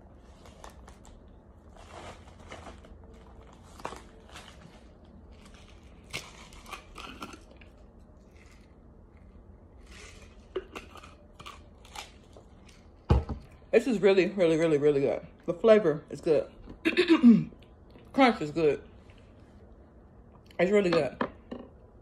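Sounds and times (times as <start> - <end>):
person chewing crunchy food: 0.8 - 13.0.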